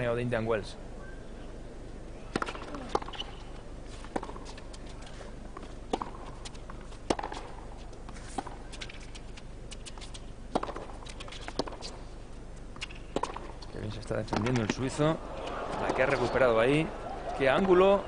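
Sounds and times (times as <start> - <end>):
racket striking tennis ball: 2.3 - 3.4, 5.9 - 7.6, 9.8 - 12.0, 12.8 - 13.6
tennis ball bouncing: 2.3 - 3.4, 4.1 - 4.8, 5.6 - 9.2, 9.8 - 12.0, 12.8 - 13.7, 14.3 - 16.4
hushed crowd: 14.8 - 18.0.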